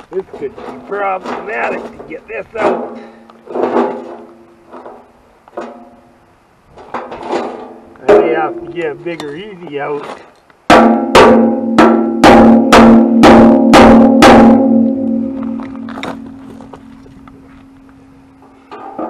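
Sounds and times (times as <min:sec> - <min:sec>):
hammer blows on steel: 0:10.7 - 0:15.6.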